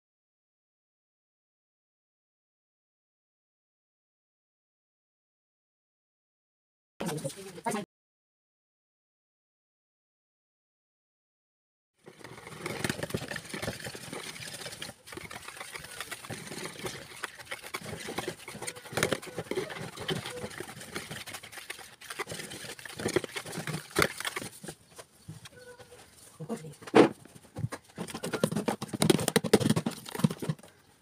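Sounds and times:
whisk scraping plastic bowl: 0:12.0 - 0:24.9, 0:27.8 - 0:30.8
whisk knocking bowl: 0:12.9 - 0:24.6.

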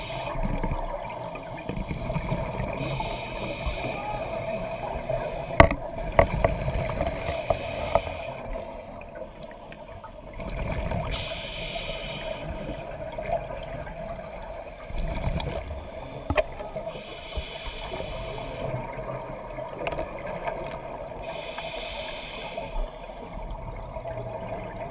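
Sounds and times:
regulator inhale hiss: 0:00.0 - 0:00.4, 0:01.1 - 0:05.6, 0:06.4 - 0:10.4, 0:11.1 - 0:13.0, 0:14.1 - 0:19.8, 0:21.2 - 0:23.5
bubbling gurgles of exhaled air: 0:00.0 - 0:21.4.

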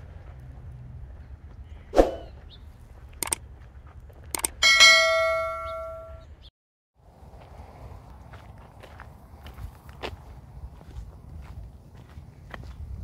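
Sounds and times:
sharp clicks: 0:03.2 - 0:03.4, 0:04.3 - 0:04.6
metal bell ringing: 0:04.4 - 0:06.2.

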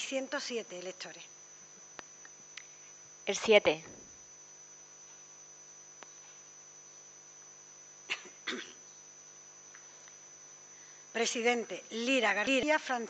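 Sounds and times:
electrical hum: 0:00.0 - 0:13.0
person coughing: 0:08.1 - 0:08.8.

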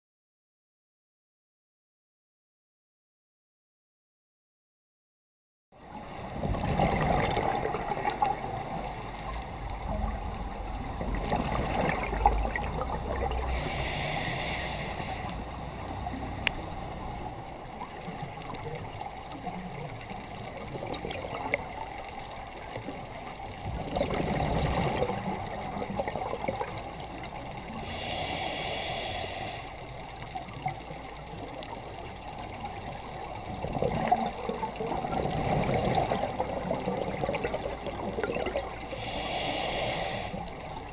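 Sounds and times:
muffled water noise: 0:05.8 - 0:40.9
exhaled bubbles gurgling: 0:05.9 - 0:40.9
hissing regulator inhalations: 0:13.5 - 0:15.6, 0:27.7 - 0:30.0, 0:38.9 - 0:40.6.

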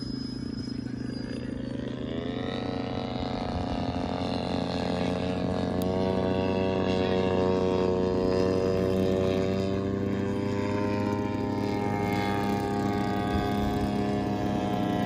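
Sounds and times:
model airplane motor droning: 0:00.0 - 0:15.0.

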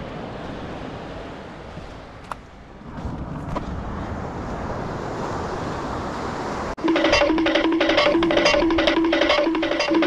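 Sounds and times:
surf washing: 0:00.0 - 0:07.9.

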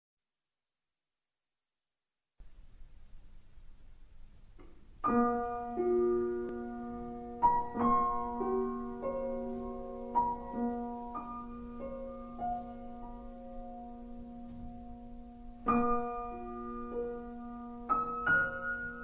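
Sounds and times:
slow soft piano music: 0:04.5 - 0:19.0.

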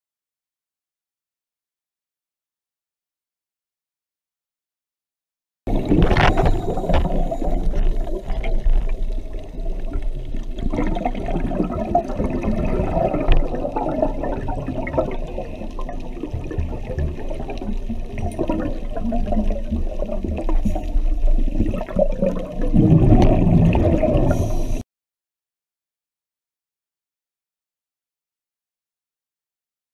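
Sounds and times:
underwater bubbling and gurgling: 0:05.7 - 0:24.8.

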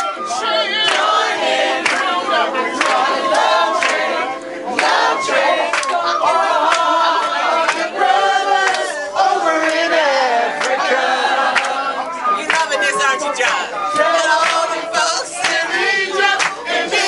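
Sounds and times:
group singing and shouting: 0:00.0 - 0:17.0
hand claps: 0:00.8 - 0:01.1, 0:01.8 - 0:02.1, 0:02.8 - 0:04.1, 0:05.7 - 0:06.0, 0:07.6 - 0:07.9, 0:10.6 - 0:10.8, 0:11.5 - 0:11.8, 0:12.4 - 0:14.8, 0:15.4 - 0:15.6, 0:16.4 - 0:16.6.

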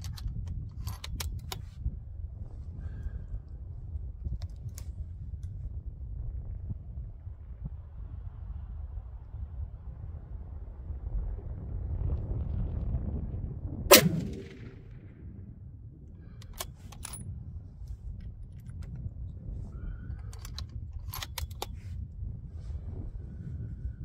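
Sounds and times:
wind rumble on microphone: 0:00.0 - 0:24.0
rifle bolt clicks: 0:13.9 - 0:14.7, 0:20.3 - 0:21.8
rifle shot with echo: 0:13.9 - 0:15.1.

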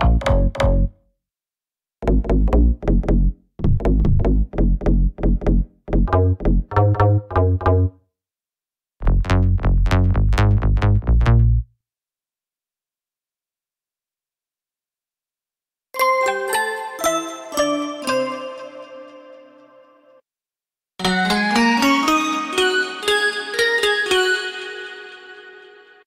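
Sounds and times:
synth bass notes: 0:02.0 - 0:08.0, 0:09.0 - 0:11.7.

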